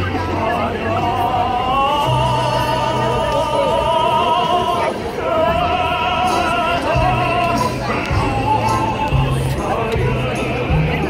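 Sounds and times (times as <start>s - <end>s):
man singing with vibrato: 0.0s - 11.0s.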